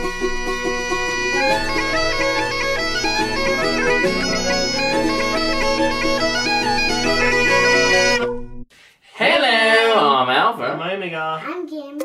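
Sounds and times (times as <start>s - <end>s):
bagpipe drone: 0.0s - 8.6s
bagpipe melody: 0.0s - 8.6s.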